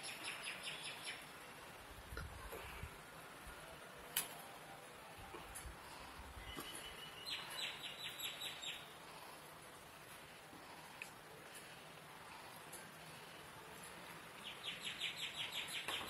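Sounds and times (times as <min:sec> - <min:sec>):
bird chirping: 0:00.0 - 0:01.5, 0:06.4 - 0:08.9, 0:14.3 - 0:16.0
faint outdoor background noise: 0:00.0 - 0:16.0.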